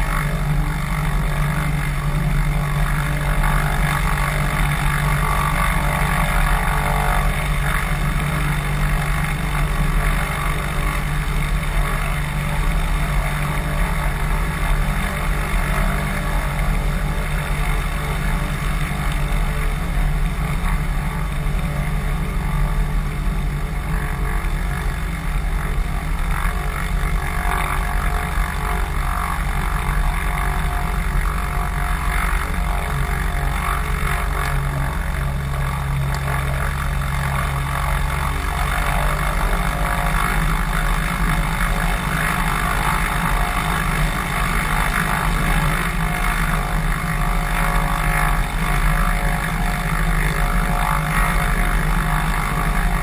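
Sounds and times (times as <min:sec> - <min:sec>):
small plane engine and propeller: 0:00.0 - 0:53.0.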